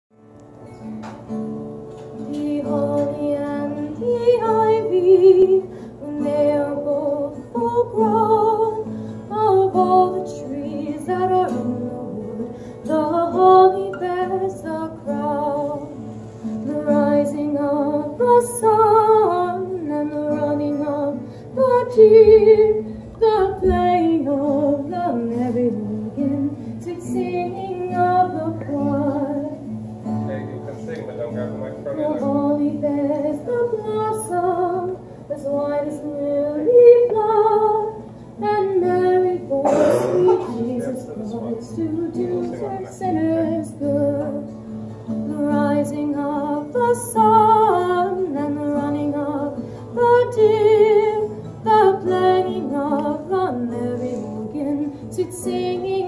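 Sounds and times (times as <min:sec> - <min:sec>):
acoustic guitar: 0:00.1 - 0:56.0
woman singing: 0:02.2 - 0:29.8, 0:32.0 - 0:56.0.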